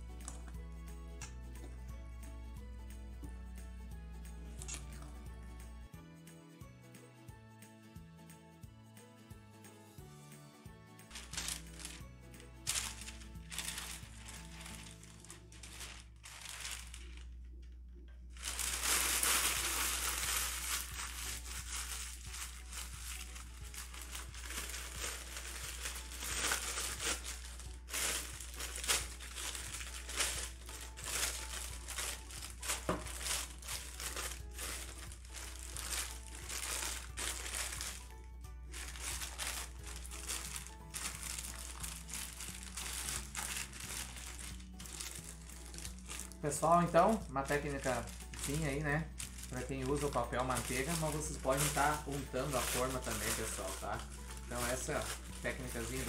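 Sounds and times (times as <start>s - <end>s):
background music: 0.0s - 56.0s
paper crinkling: 11.1s - 12.0s, 12.6s - 17.8s, 18.4s - 56.0s.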